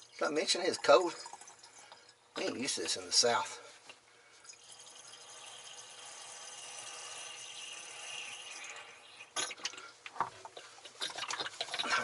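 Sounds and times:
water trickling into battery: 10.8 - 12.0.

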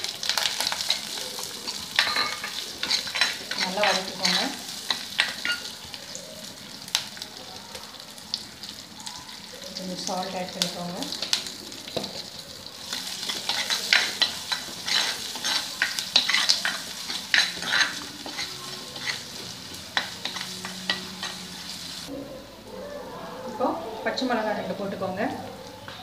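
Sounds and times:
shallots sizzling in oil: 0.0 - 22.1
steel spoon scraping a pot: 0.8 - 5.7, 12.9 - 21.7.

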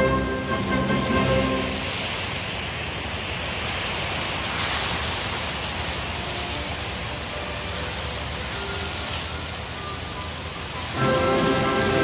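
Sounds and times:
running water splashing: 0.0 - 12.0.

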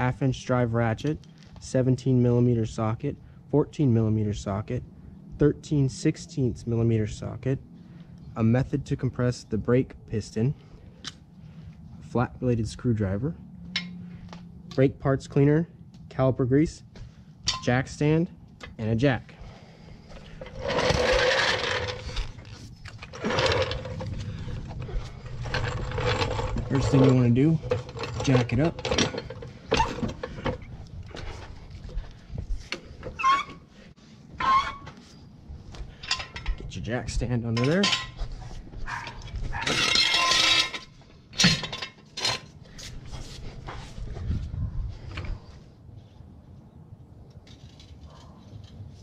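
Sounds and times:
floor jack rolling on concrete: 20.1 - 31.5, 39.5 - 42.6.

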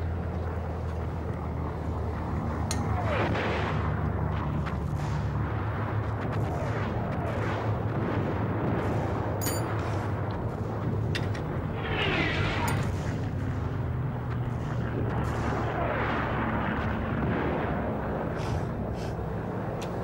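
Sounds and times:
low artillery rumble: 0.0 - 20.0.

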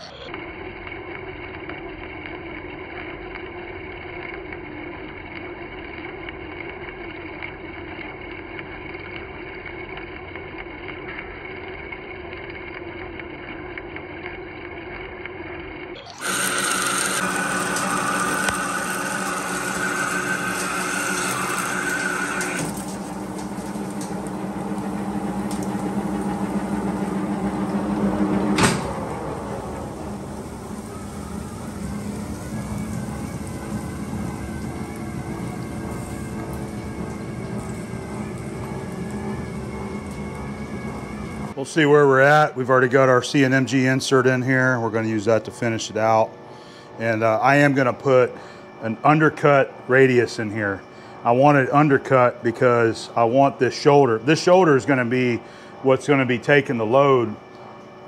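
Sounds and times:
lathe running: 0.0 - 57.9
high-pitched whine: 16.0 - 58.0
coolant splashing: 16.2 - 41.6
lathe lever clunk: 26.9 - 29.2.

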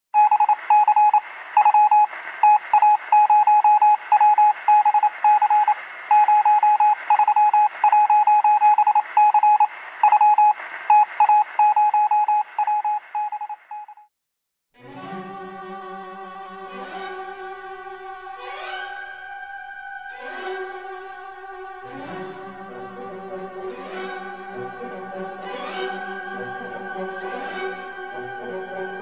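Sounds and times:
morse code beeps: 0.2 - 14.1.

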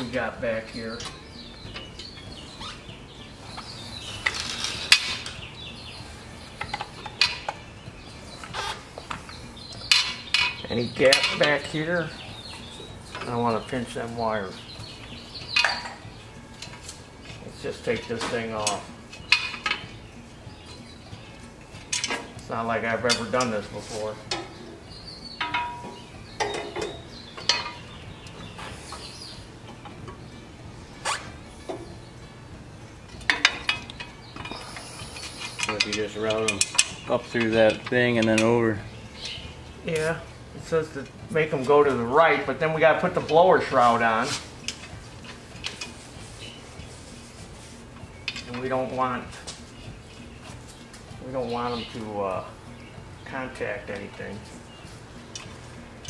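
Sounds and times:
sheet metal clinking: 9.8 - 12.0, 25.4 - 28.0, 35.2 - 46.6.

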